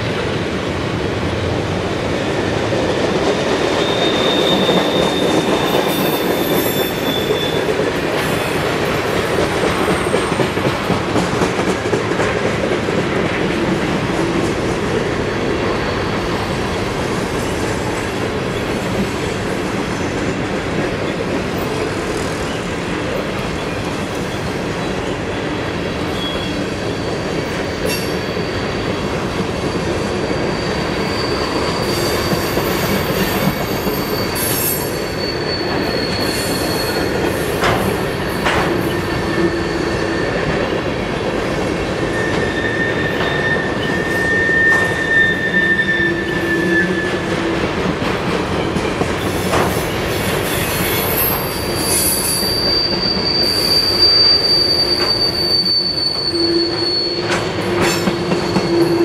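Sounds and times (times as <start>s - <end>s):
freight train wheels rumbling: 0.0s - 59.0s
faint high wheel squeal: 3.7s - 8.6s, 15.7s - 16.8s, 26.1s - 40.8s, 42.0s - 47.3s, 49.3s - 59.0s.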